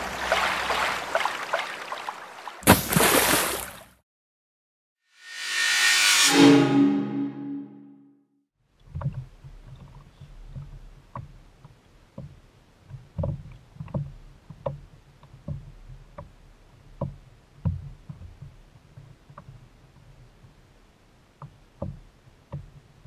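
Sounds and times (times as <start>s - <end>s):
hollow knocks on kayak hull: 21.4s - 22.7s.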